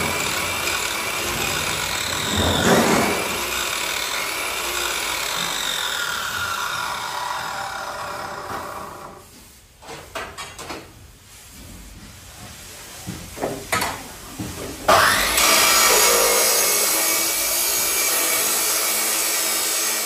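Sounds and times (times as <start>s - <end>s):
marble cutter motor running: 0.0s - 9.1s, 15.0s - 20.0s.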